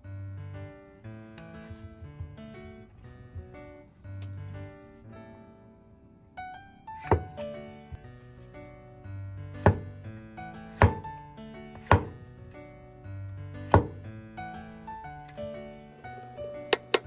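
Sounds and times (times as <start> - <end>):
light piano music: 0.0 - 17.0
cleaver chopping on wooden board: 9.6 - 9.9, 10.8 - 11.1, 11.8 - 12.2, 13.6 - 14.0.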